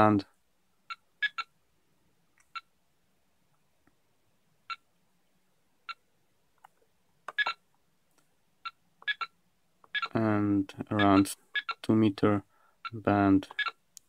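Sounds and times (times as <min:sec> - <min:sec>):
keypad beeps: 0:07.3 - 0:07.6, 0:08.6 - 0:09.3, 0:09.9 - 0:10.2, 0:13.6 - 0:13.8.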